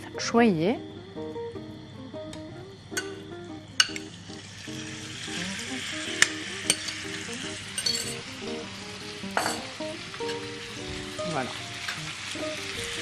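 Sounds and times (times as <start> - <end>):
beef sizzling in a pan: 2.9 - 13.0
glass bowl and pan clinks: 3.8 - 4.1, 6.2 - 7.0, 7.8 - 8.2, 9.3 - 10.4.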